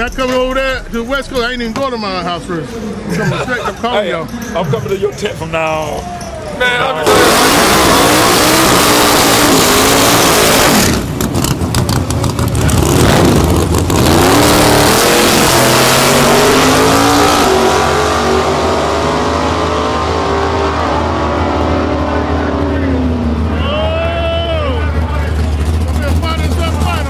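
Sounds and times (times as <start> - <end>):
race car engines revving: 0.0 - 27.0
race cars accelerating down strip: 6.4 - 27.0.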